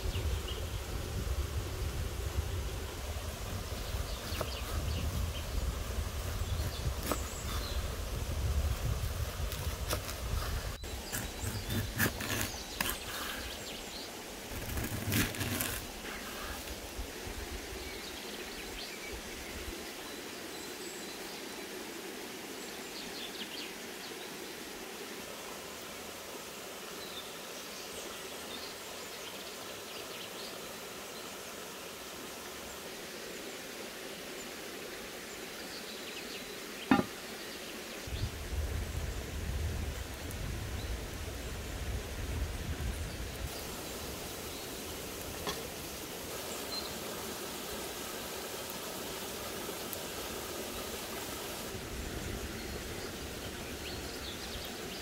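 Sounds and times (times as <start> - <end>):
stream rushing: 0.0 - 55.0
knife slicing fruit: 4.3 - 4.7, 7.0 - 7.4, 9.5 - 13.5, 14.5 - 16.7
knife knocking on wooden board: 36.9 - 37.1.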